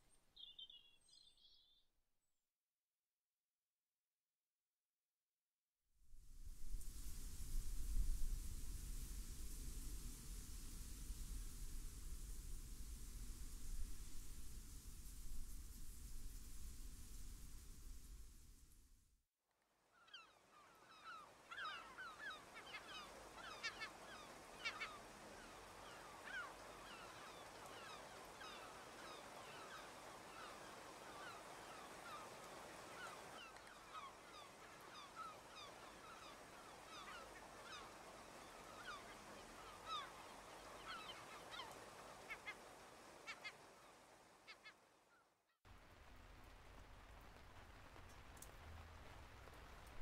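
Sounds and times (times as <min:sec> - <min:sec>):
steady outdoor hiss: 0:06.1 - 0:19.2, 0:19.8 - 0:50.0
waterbirds honking: 0:20.9 - 0:44.7.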